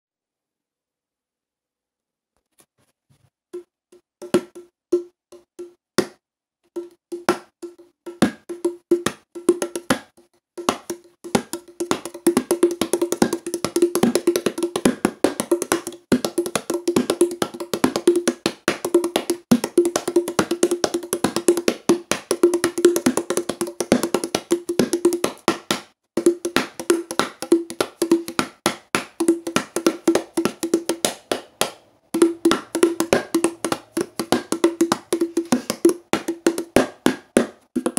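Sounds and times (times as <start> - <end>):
drum strikes: 32.2 - 37.9.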